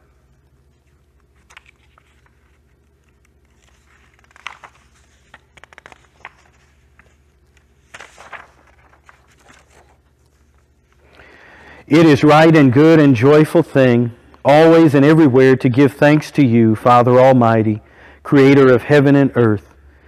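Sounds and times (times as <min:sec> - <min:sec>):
low room hum: 0:00.0 - 0:20.0
paper sheets rustling: 0:00.1 - 0:11.2.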